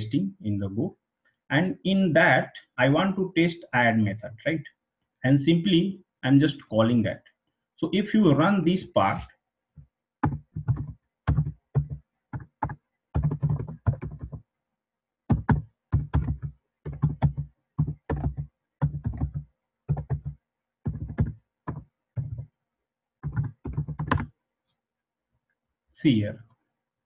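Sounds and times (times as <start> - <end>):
computer keyboard typing: 10.2 - 14.4, 15.3 - 22.5, 23.2 - 24.3.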